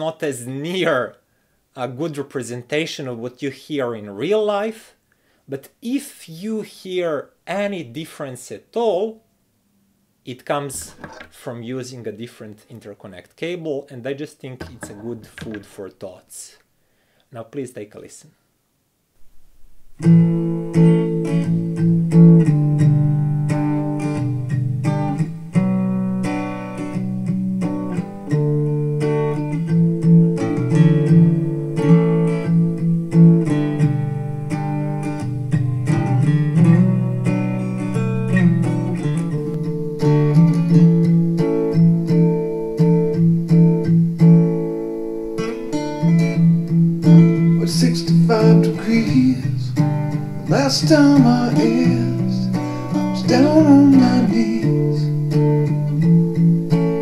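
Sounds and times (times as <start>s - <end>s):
acoustic guitar music over speakers: 19.2s - 57.0s.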